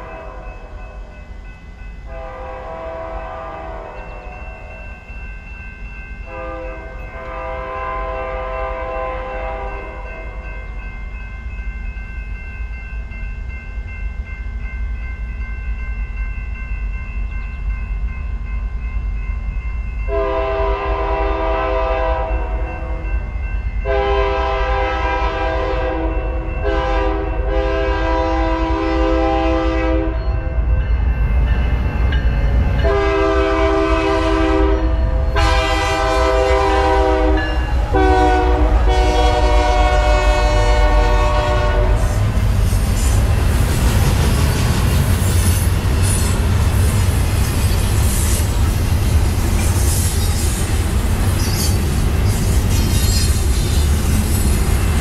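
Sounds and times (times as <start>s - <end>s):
locomotive air horn blasts: 2.1s - 4.2s, 6.3s - 10.0s, 20.1s - 22.5s, 23.9s - 30.2s, 32.8s - 42.2s.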